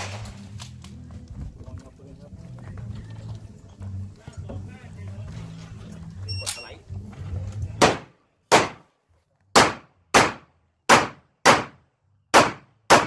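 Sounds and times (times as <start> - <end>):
pistol shots: 0.0 - 0.6, 7.8 - 8.8, 9.6 - 13.0.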